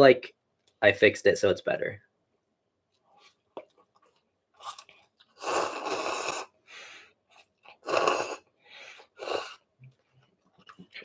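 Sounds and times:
person slurping soup: 4.6s - 6.6s, 7.4s - 9.7s.

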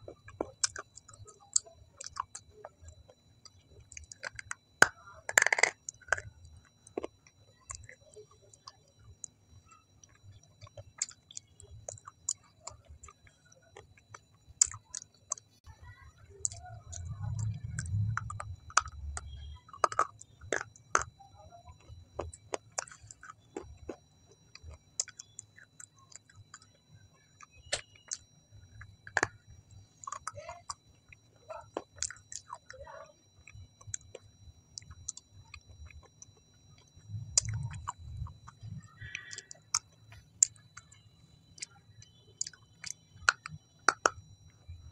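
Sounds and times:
wet mouth clicks and smacks: 3.5s - 6.3s, 16.4s - 21.1s, 27.4s - 28.2s, 35.8s - 41.0s, 41.6s - 44.2s.

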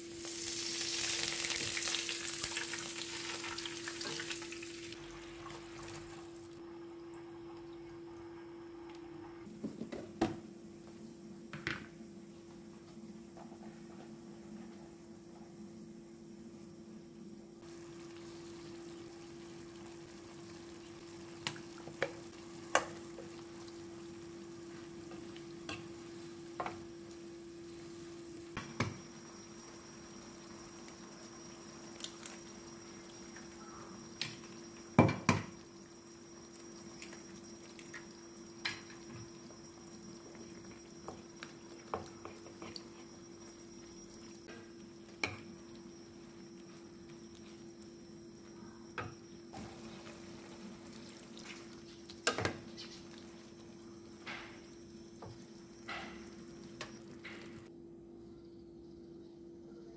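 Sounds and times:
vegetables sizzling in a pan: 0.0s - 6.6s, 17.6s - 47.6s, 49.0s - 57.7s.

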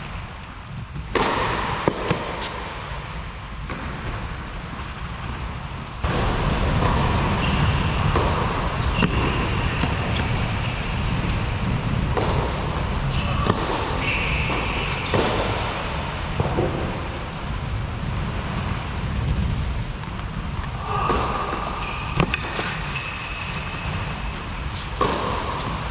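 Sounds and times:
tennis ball hits and bounces: 1.0s - 3.0s, 6.8s - 10.8s, 12.0s - 12.8s, 13.4s - 15.8s, 21.0s - 23.7s, 24.8s - 25.9s.

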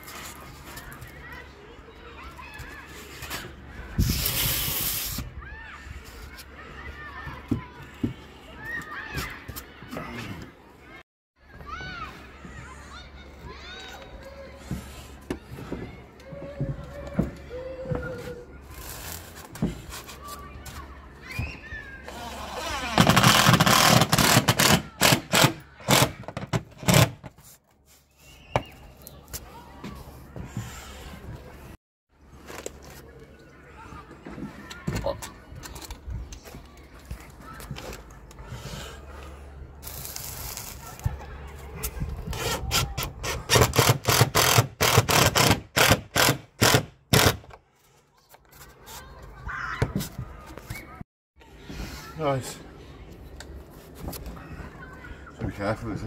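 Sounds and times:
impact driver driving screw: 43.5s - 47.5s.

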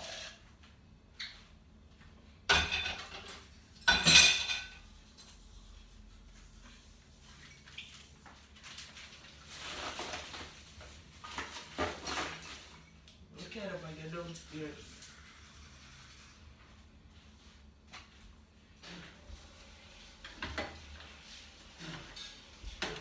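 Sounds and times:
dishes clattering: 2.5s - 4.8s
dishes and cutlery clinking: 2.5s - 5.4s.

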